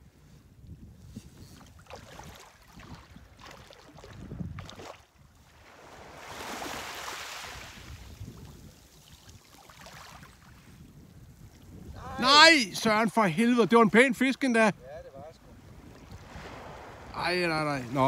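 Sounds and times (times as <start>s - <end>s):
wind buffeting microphone: 0.0s - 18.0s
small waves lapping: 1.2s - 18.0s
water splashes: 1.7s - 10.6s.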